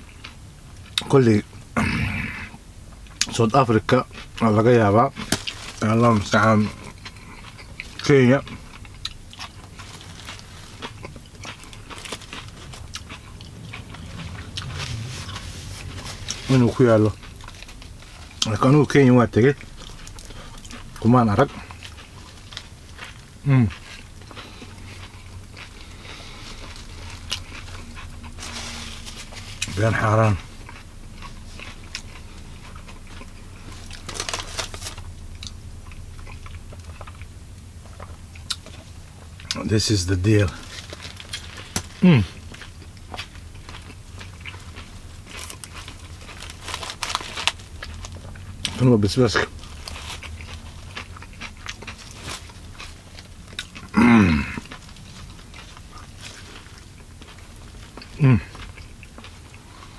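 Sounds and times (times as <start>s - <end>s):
low hum: 0.0s - 59.9s
person chewing food: 0.0s - 59.9s
paper or plastic crackling: 28.4s - 30.0s, 33.8s - 35.1s, 40.4s - 42.0s, 45.4s - 48.8s.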